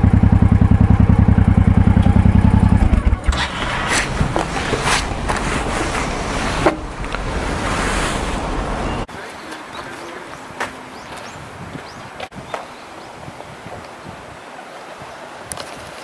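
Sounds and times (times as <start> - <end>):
motorcycle engine idling: 0.0 - 3.4
outdoor ambience: 0.0 - 16.0.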